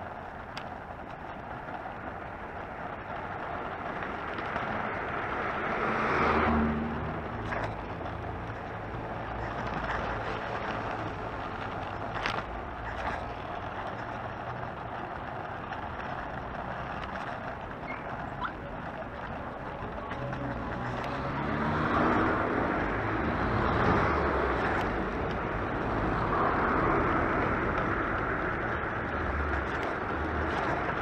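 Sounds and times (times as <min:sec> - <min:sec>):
wind and scooter rolling noise: 0:00.0 - 0:31.0.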